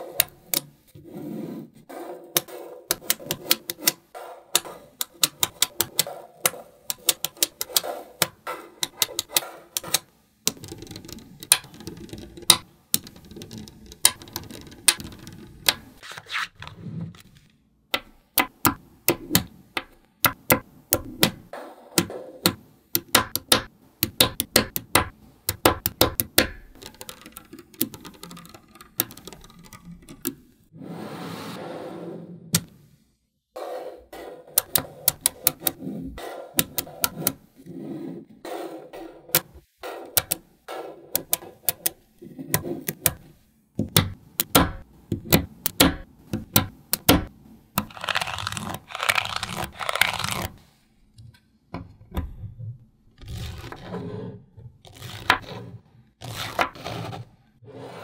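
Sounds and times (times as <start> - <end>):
magnetic balls clicking together: 2.9 - 16.0, 18.0 - 30.7, 34.6 - 35.8, 39.3 - 40.4, 41.1 - 48.9.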